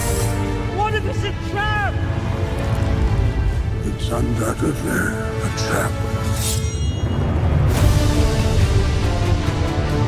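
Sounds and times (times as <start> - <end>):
dramatic trailer score: 0.0 - 10.0.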